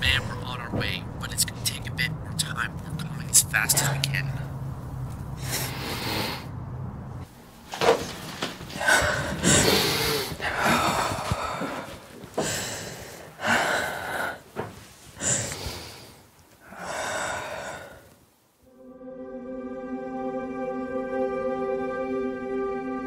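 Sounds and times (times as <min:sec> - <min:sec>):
woman breathing heavily: 0:05.3 - 0:06.6, 0:08.7 - 0:18.2.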